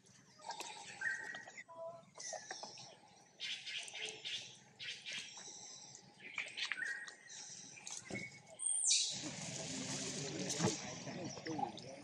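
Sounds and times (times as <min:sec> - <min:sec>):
high-pitched animal calls and chirps: 0:02.2 - 0:09.2.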